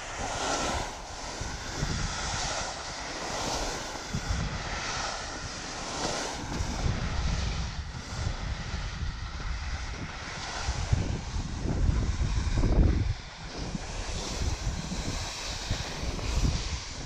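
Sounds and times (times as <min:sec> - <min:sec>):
skis hissing and scraping over snow: 0:00.0 - 0:17.0
wind buffeting microphone: 0:00.0 - 0:17.0.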